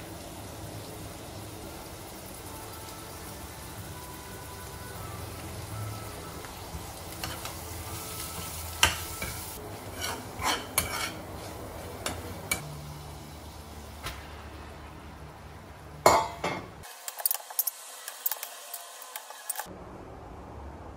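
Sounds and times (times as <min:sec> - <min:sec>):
food sizzling: 0:00.0 - 0:19.7
utensil scraping metal pan: 0:09.2 - 0:11.6.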